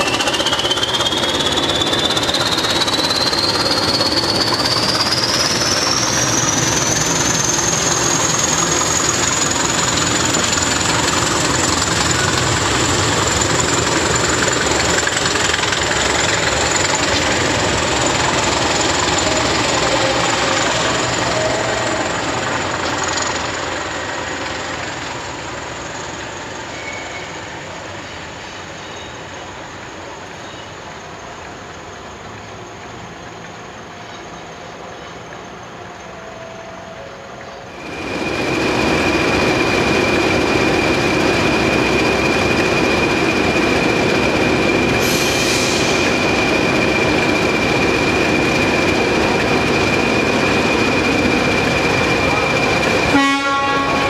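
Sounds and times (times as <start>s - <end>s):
high whistle: 0.0s - 9.5s, 26.6s - 27.5s
diesel locomotive engines running: 0.0s - 54.0s.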